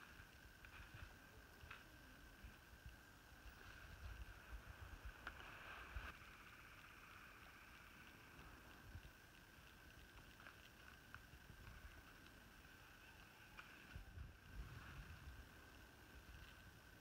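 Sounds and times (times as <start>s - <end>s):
faint high hum: 0.0s - 17.0s
soft ticks: 6.7s - 14.0s.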